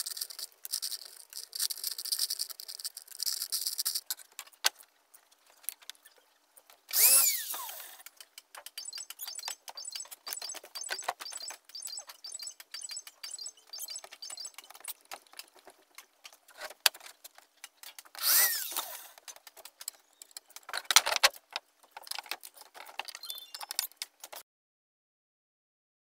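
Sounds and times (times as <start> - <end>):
scraping squeak: 23.1 - 23.9.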